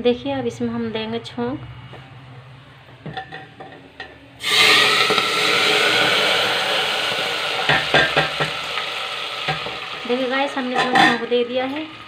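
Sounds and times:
hot oil sizzling: 4.4s - 12.0s.

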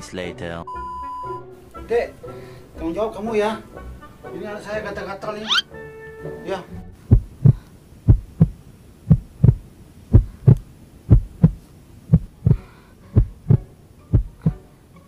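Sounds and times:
heartbeat thumps: 7.0s - 14.6s.

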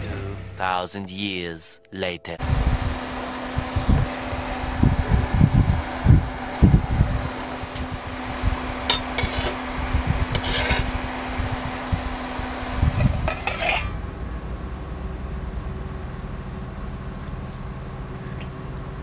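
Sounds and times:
fan hum: 0.0s - 19.0s
metal tongs scraping charcoal: 8.8s - 11.1s, 12.8s - 14.0s.

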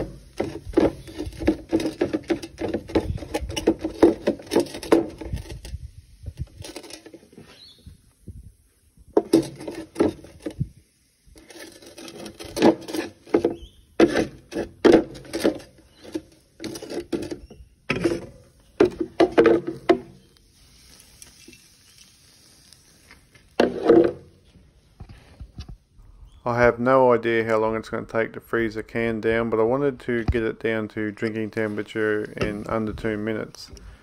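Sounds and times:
can rolling and scraping in tray: 0.0s - 7.8s, 9.1s - 25.5s.

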